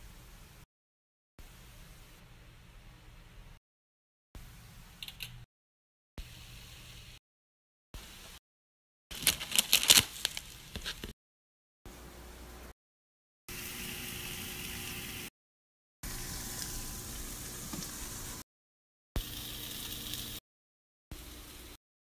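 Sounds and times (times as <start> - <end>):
saucepan simmering hiss: 16.1 - 18.4, 19.2 - 20.4.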